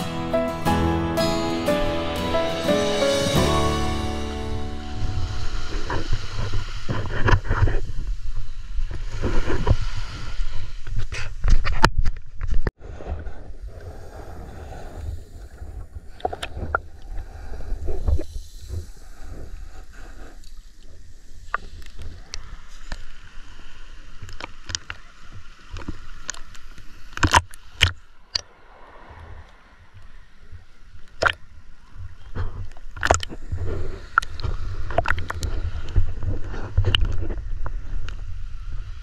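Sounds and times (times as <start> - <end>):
low rumble: 3.3 - 6.9.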